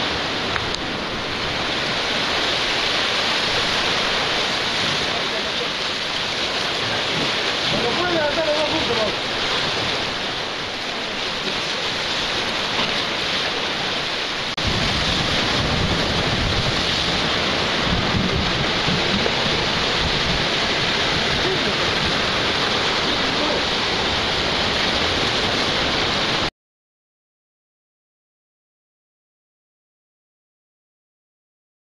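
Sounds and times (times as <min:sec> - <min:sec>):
sea surf washing against rocks: 0:00.0 - 0:26.5
wind on microphone: 0:00.0 - 0:26.5.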